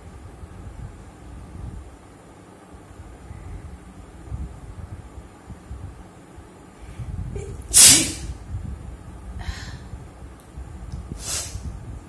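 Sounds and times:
woman sneezing: 0:07.4 - 0:08.3
soft sniffs: 0:11.2 - 0:11.6.

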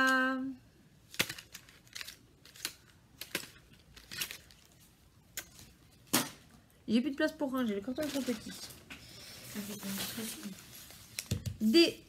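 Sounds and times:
plastic packaging crinkling: 0:01.0 - 0:06.1, 0:07.6 - 0:11.4.

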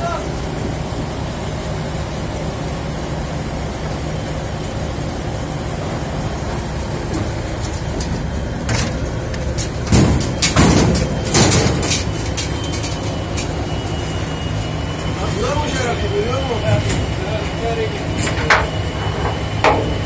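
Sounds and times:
machinery engine drone: 0:00.0 - 0:20.0
door clattering knocks and scrapes: 0:07.2 - 0:13.1.

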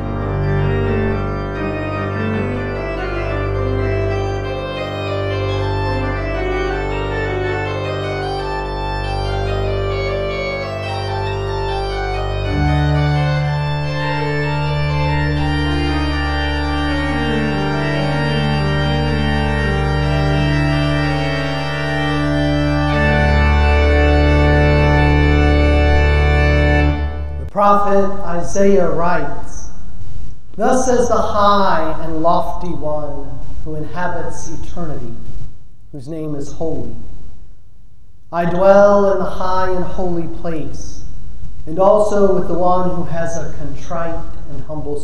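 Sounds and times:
church organ playing chords: 0:00.0 - 0:29.8, 0:30.6 - 0:32.3.

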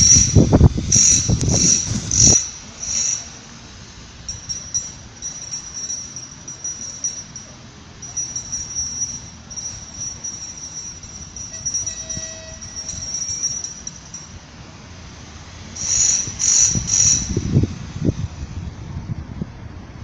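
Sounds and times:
level-crossing warning bell ringing: 0:00.0 - 0:14.5, 0:15.8 - 0:17.5.

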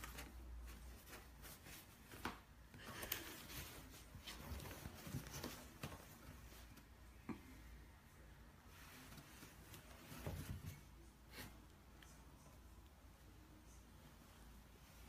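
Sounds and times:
rustling of paper and cardboard: 0:00.0 - 0:06.8.

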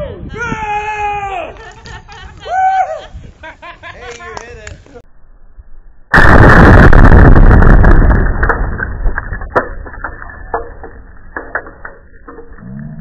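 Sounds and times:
explosion blast: 0:06.1 - 0:10.7
debris raining down: 0:06.1 - 0:13.0.

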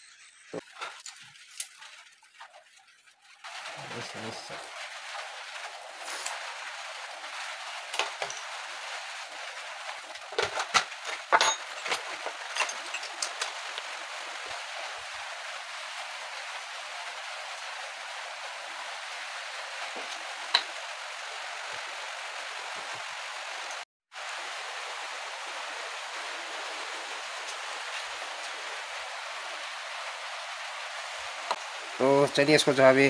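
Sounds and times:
light rain hiss: 0:00.6 - 0:33.0
hand tools knocking and clinking: 0:10.4 - 0:13.8.

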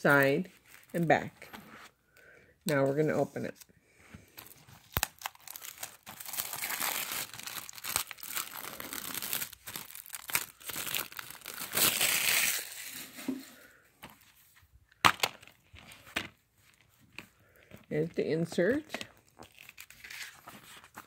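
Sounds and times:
shrink wrap crinkling: 0:00.0 - 0:01.6, 0:04.3 - 0:13.2, 0:15.0 - 0:21.0
plastic case snapping open: 0:15.0 - 0:15.5.

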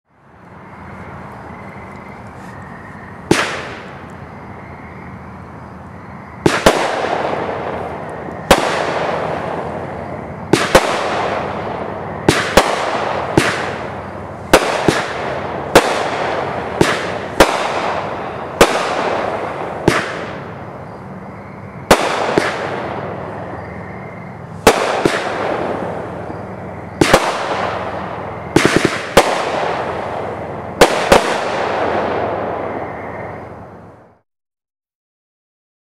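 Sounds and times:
low steady hiss: 0:00.1 - 0:34.2
firework bangs: 0:03.2 - 0:04.1, 0:06.4 - 0:34.2.

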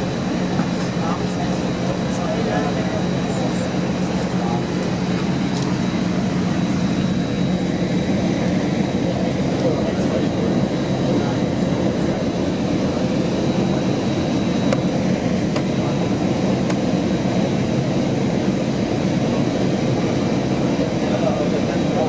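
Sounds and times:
airplane cabin rumble: 0:00.0 - 0:22.0.

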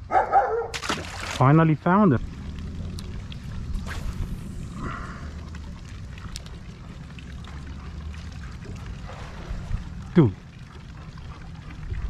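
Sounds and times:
steady low rumble: 0:01.4 - 0:12.0
water sloshing against boat hull: 0:05.5 - 0:12.0.

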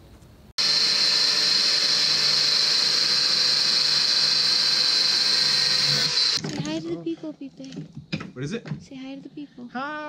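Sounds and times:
angle grinder cutting steel: 0:00.6 - 0:06.4.

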